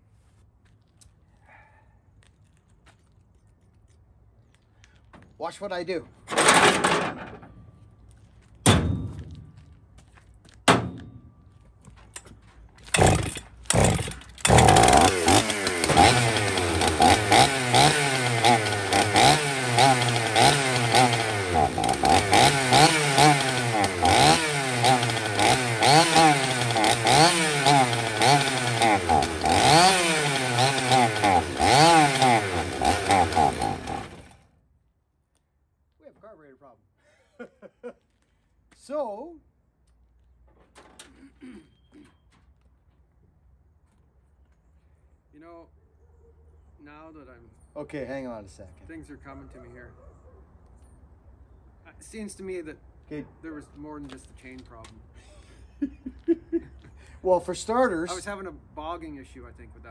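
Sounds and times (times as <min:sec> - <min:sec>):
chainsaw pull-start bursts: 0:12.9 - 0:34.4
chainsaw running unevenly: 0:12.9 - 0:34.4.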